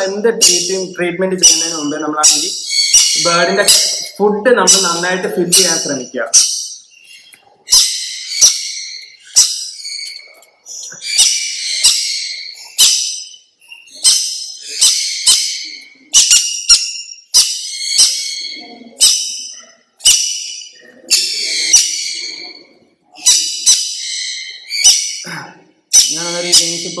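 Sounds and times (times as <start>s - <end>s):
parrot screeching: 1.4s - 4.0s, 7.7s - 10.4s, 11.0s - 22.6s, 25.9s - 26.9s.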